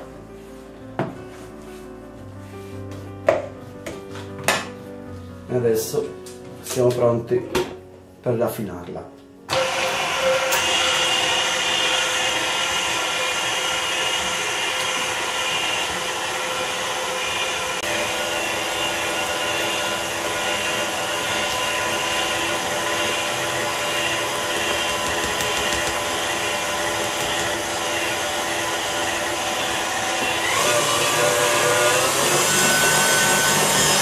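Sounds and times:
stand mixer motor whine: 9.5s - 34.0s
whisk beating cream in bowl: 9.6s - 34.0s.

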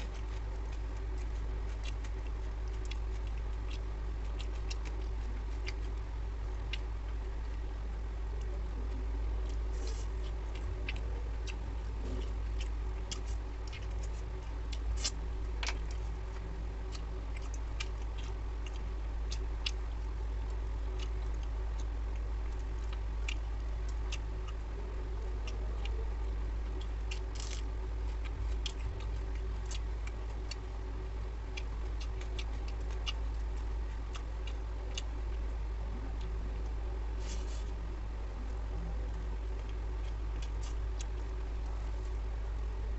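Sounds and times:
chewing smacks and clicks: 0.0s - 42.9s
low hum: 0.0s - 42.9s.

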